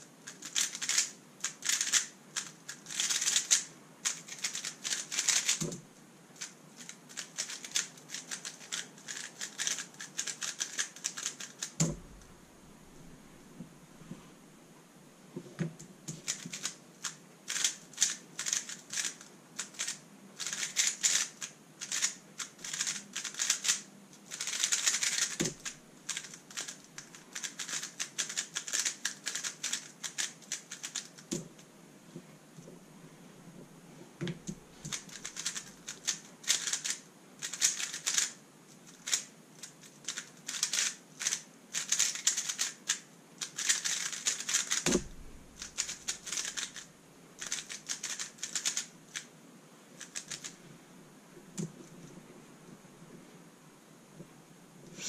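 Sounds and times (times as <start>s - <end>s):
rapid plastic clacking of puzzle cube: 0.2s - 5.8s, 6.4s - 11.9s, 16.1s - 31.7s, 34.5s - 49.3s, 50.0s - 50.6s
dull thuds: 44.9s - 45.6s.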